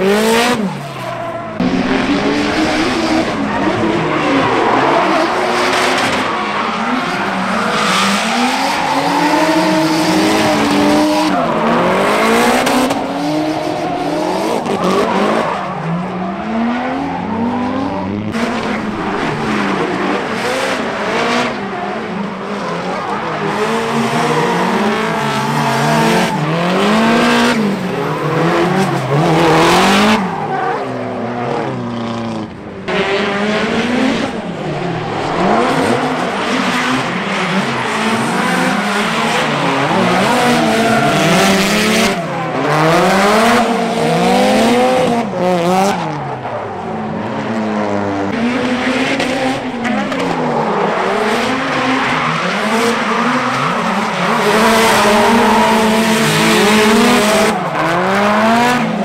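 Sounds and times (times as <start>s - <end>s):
car engines revving: 0.0s - 59.0s.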